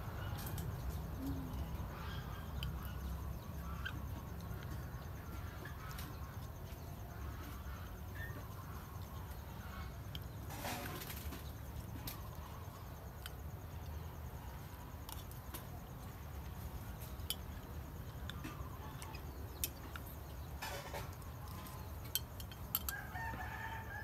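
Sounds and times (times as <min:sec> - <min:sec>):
metal spoon clicking against glass: 0:22.1 - 0:23.0
rooster crowing: 0:22.8 - 0:24.0.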